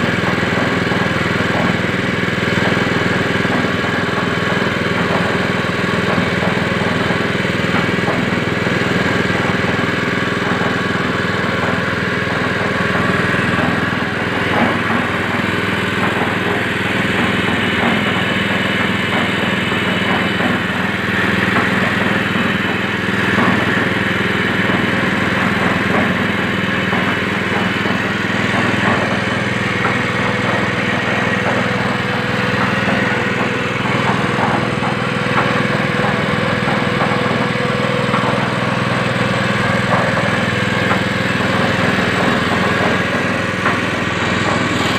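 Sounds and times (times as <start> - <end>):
engine running steadily: 0.0 - 44.9.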